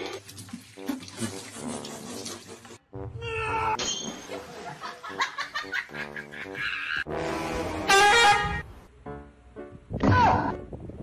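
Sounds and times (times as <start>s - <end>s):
music: 0.0s - 11.0s.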